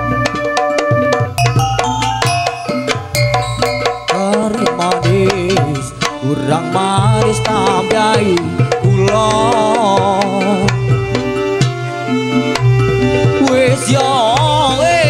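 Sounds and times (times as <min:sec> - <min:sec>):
hand drums rhythm: 0:01.3 - 0:11.3
wavering melody with trills: 0:01.4 - 0:06.6.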